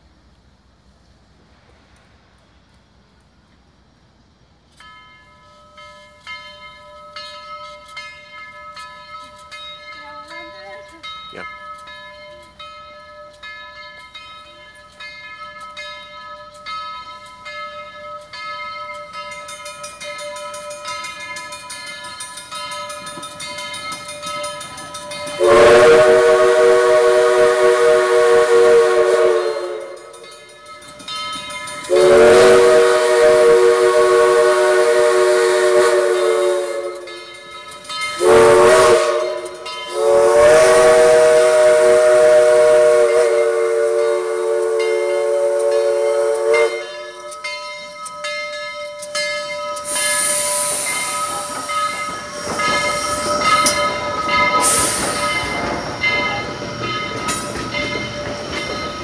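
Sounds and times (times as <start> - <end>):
crossing signal bell ringing: 4.7 - 59.0
steam locomotive whistle blasts: 25.2 - 30.3, 31.8 - 37.4, 38.1 - 47.5, 49.7 - 57.6.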